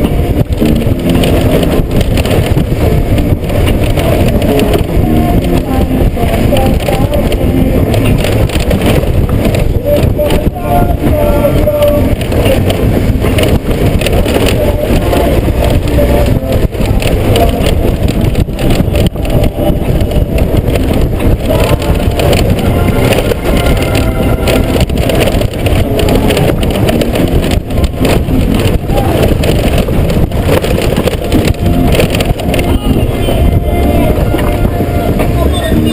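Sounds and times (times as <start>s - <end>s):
motorcycle engine running: 0.0s - 35.9s
tyres on gravel: 0.0s - 35.9s
wind buffeting on camera: 0.0s - 35.9s.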